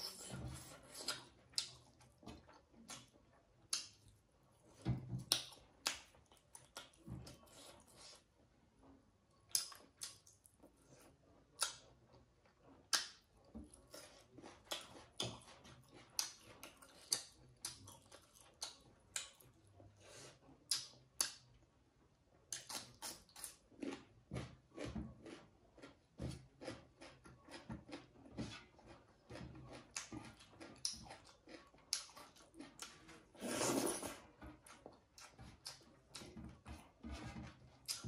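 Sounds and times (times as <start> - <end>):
person chewing with wet mouth smacks: 0.0 - 4.2, 9.5 - 11.0, 12.8 - 19.5, 22.5 - 24.5, 29.3 - 33.1.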